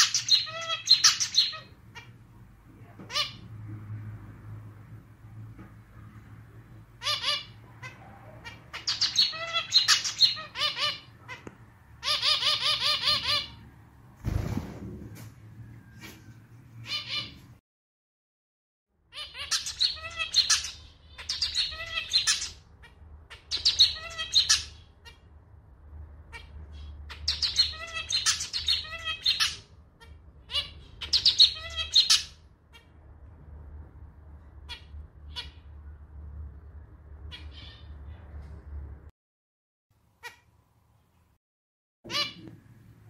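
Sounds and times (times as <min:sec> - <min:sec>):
finch singing: 0:00.0 - 0:02.2, 0:07.0 - 0:13.6, 0:19.1 - 0:25.2, 0:26.3 - 0:32.9.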